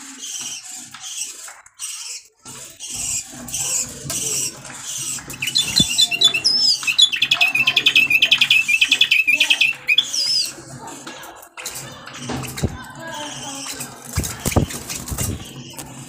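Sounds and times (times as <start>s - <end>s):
bulbul singing: 2.9s - 10.6s.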